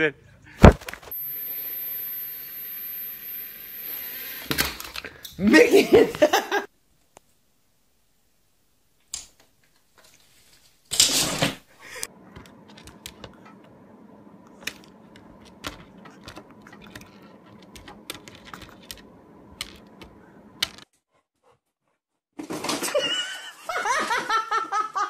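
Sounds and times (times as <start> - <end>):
steady low hum: 0.2 - 9.1, 11.1 - 20.8.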